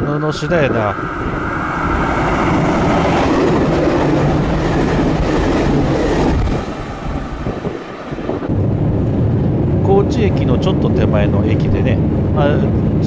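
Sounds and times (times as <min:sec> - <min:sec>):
train wheels and engine running: 0:00.0 - 0:09.5.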